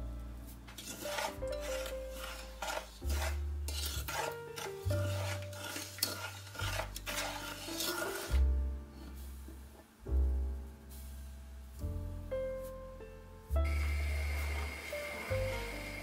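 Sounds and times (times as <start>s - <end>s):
background music: 0.0s - 16.0s
wooden spoon scraping saucepan: 0.7s - 9.6s.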